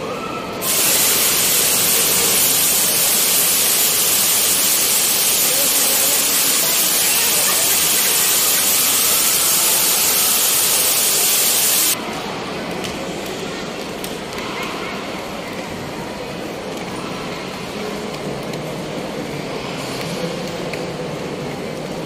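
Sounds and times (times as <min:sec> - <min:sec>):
loud steady hiss: 0:00.6 - 0:12.0.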